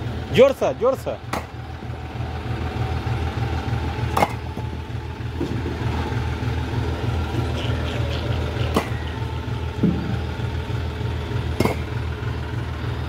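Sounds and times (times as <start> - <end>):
diesel tractor engine idling: 0.0 - 13.0
sharp knocks: 9.8 - 10.2, 11.6 - 11.9.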